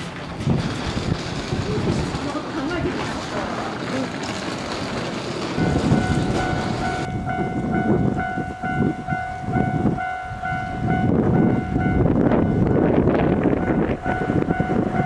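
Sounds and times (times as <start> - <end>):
low rumbling noise: 0.0 - 15.0
level-crossing alarm dinging: 5.6 - 15.0.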